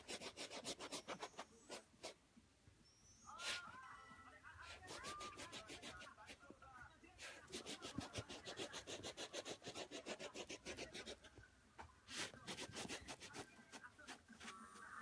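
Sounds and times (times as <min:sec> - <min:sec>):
puppy scratching at floor: 0:04.6 - 0:06.4, 0:07.2 - 0:11.3, 0:12.1 - 0:14.7.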